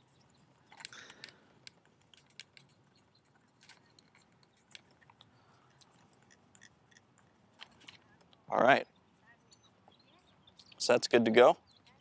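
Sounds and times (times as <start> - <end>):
handling noises: 0.0 - 8.5.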